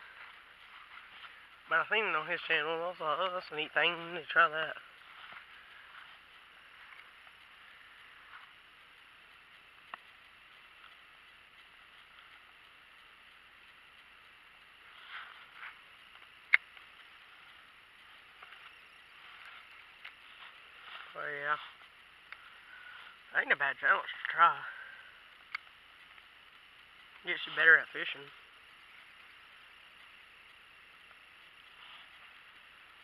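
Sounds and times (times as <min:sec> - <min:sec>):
steady high hiss: 0:00.0 - 0:33.0
sharp clicks: 0:04.7 - 0:33.0.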